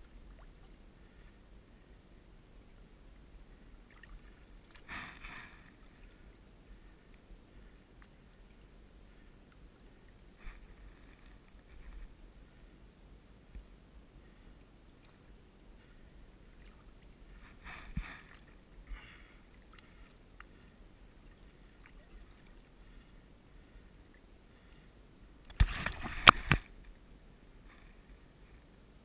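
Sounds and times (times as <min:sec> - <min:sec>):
water splashing: 0:03.5 - 0:06.3, 0:14.9 - 0:23.1, 0:25.5 - 0:26.8.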